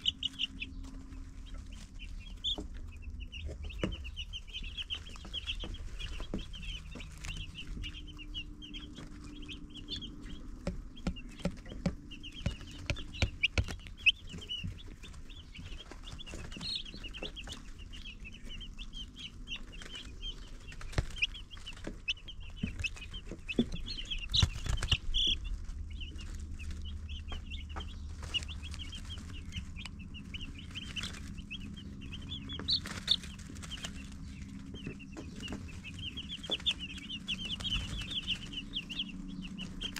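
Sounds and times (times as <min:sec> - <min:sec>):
baby chicks peeping: 0:00.0 - 0:39.9
low steady hum: 0:00.0 - 0:39.9
sharp taps and knocks: 0:02.4 - 0:17.8, 0:19.8 - 0:25.4, 0:27.2 - 0:29.1, 0:30.8 - 0:39.9.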